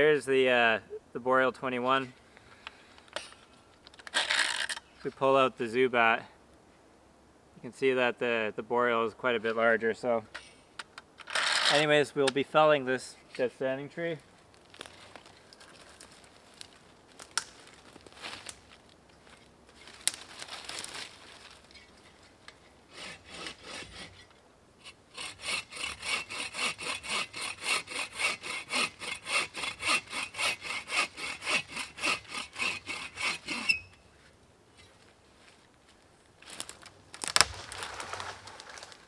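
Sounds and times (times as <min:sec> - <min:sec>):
rustle in leaf litter: 0:14.5 - 0:19.0, 0:19.7 - 0:21.9, 0:36.4 - 0:39.0
bow saw cutting wood: 0:22.9 - 0:33.9.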